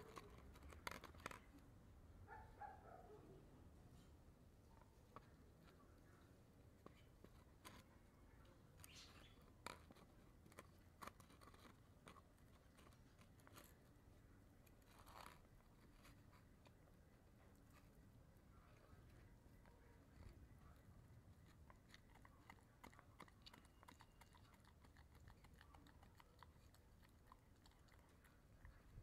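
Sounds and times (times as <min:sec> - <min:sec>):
dog chewing rawhide: 0:00.0 - 0:01.6, 0:08.8 - 0:13.9, 0:14.6 - 0:16.8, 0:20.0 - 0:29.0
crackle of chew: 0:00.0 - 0:01.8, 0:04.7 - 0:29.0
teeth clicking on chew: 0:21.5 - 0:28.8.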